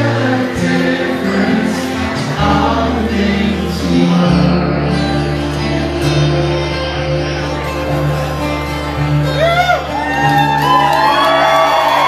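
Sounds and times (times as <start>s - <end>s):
person singing: 0.0s - 8.2s
strummed acoustic guitar: 0.0s - 10.8s
electric bass: 0.0s - 12.0s.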